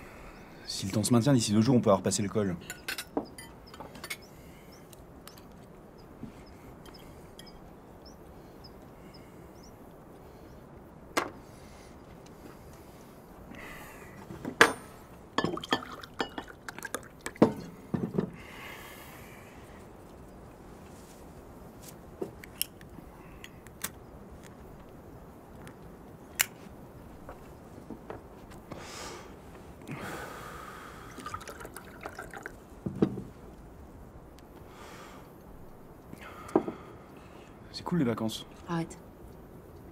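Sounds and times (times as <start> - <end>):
tableware clinking: 2.6 - 4.2, 14.6 - 16.6
liquid pouring into a glass: 31.1 - 32.6.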